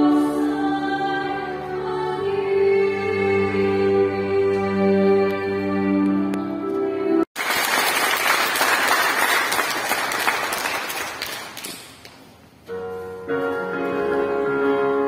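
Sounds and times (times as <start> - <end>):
music: 0.0 - 7.3, 12.7 - 15.0
crowd applauding: 7.4 - 12.2.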